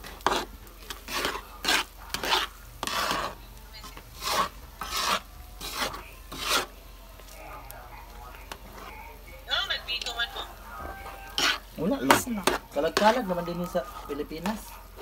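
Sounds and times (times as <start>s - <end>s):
utensil scraping a metal pan: 0.0s - 6.8s, 11.3s - 14.7s
mixture bubbling: 0.0s - 9.2s.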